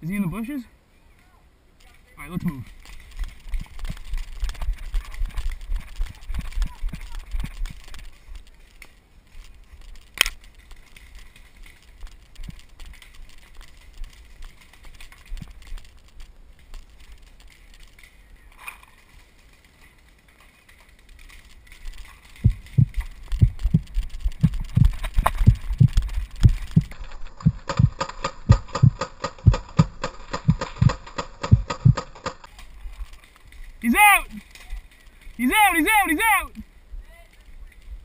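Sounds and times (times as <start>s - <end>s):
running footsteps thumping: 21.8s - 32.4s.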